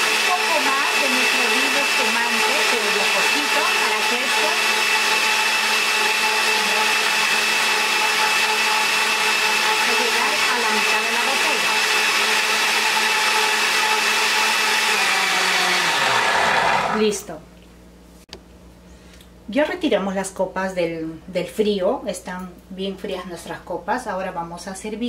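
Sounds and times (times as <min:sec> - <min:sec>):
blender running: 0:00.0 - 0:17.2.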